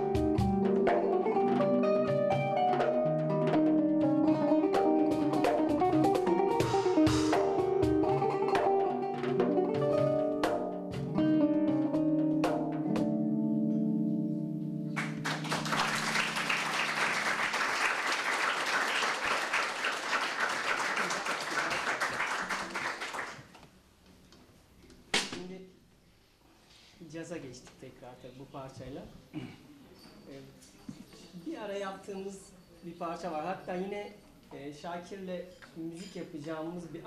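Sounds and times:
plucked kanun notes: 0.0 - 16.5
drum and cymbal hits: 4.8 - 11.3
audience applause: 15.0 - 23.5.

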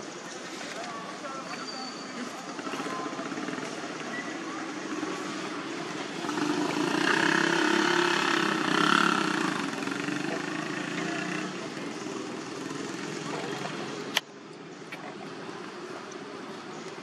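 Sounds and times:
outdoor background noise: 0.0 - 17.0
vehicle engine passing: 3.1 - 14.1.

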